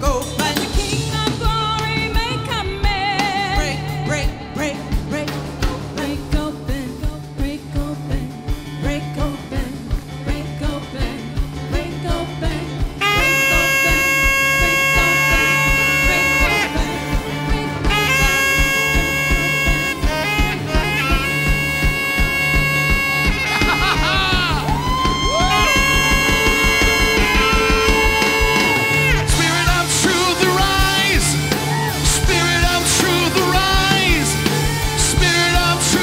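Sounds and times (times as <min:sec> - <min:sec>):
bass line: 0:00.0 - 0:36.0
drums beating: 0:00.0 - 0:36.0
worship band music: 0:00.0 - 0:36.0
wavering singing voice: 0:03.0 - 0:22.3
long held note: 0:13.0 - 0:17.2, 0:17.8 - 0:29.3.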